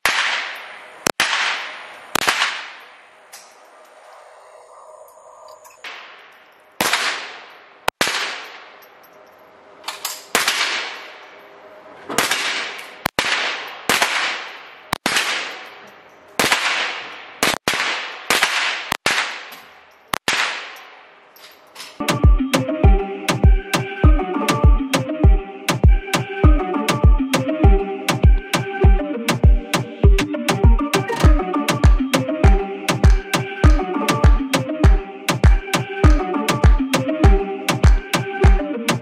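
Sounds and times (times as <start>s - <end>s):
rifle shots echoing indoors: 5.8s - 8.8s, 10.1s - 11.3s, 12.1s - 21.0s.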